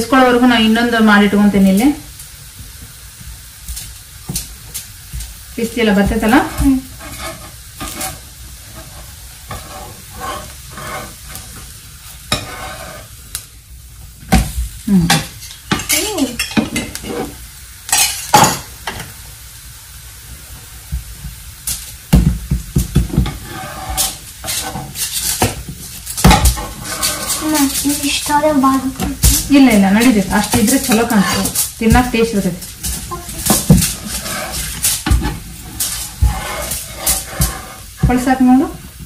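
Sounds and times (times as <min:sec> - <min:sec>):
flatbread sizzling on a pan: 0:00.0 - 0:39.0
metal spatula scraping a pan: 0:05.8 - 0:13.2, 0:15.1 - 0:19.0, 0:23.0 - 0:38.6.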